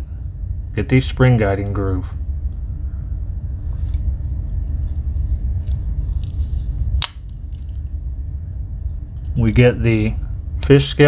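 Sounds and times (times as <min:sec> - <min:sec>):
steady low rumble: 0:00.0 - 0:11.0.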